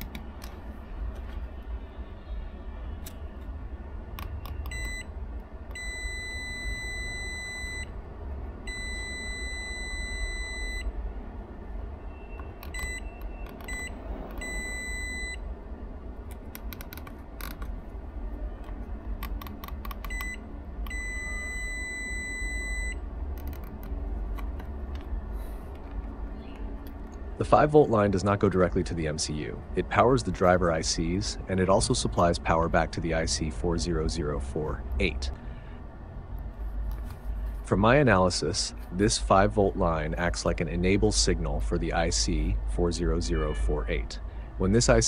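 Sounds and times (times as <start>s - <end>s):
high multimeter beeps: 4.2s - 5.1s, 5.7s - 7.9s, 8.7s - 10.9s, 12.1s - 15.4s, 20.0s - 23.0s
probe tips clicking on board: 16.3s - 17.8s, 18.6s - 20.2s.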